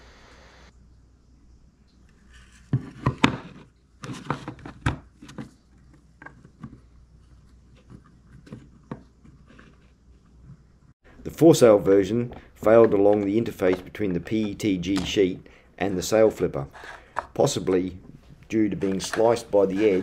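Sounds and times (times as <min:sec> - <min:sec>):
plastic parts clicking and knocking: 0:12.2 - 0:15.4, 0:16.8 - 0:17.5.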